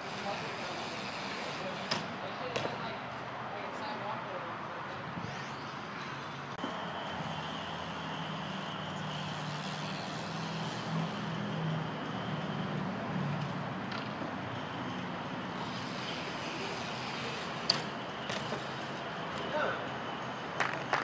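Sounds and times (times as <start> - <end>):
highway traffic roar: 0.0 - 21.0
vehicle engine drone: 4.3 - 21.0.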